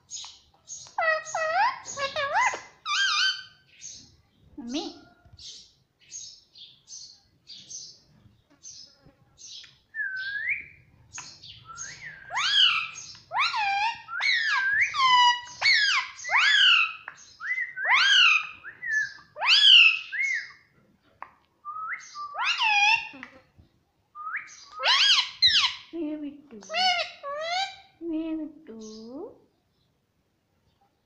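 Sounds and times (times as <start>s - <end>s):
parakeet calling: 0.1s - 4.0s, 9.4s - 20.6s, 22.0s - 23.2s, 24.2s - 25.9s, 26.6s - 28.0s.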